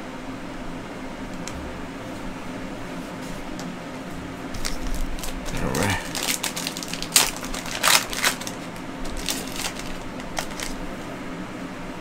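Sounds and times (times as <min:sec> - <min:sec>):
card wrappers crinkling: 0:04.6 - 0:10.8.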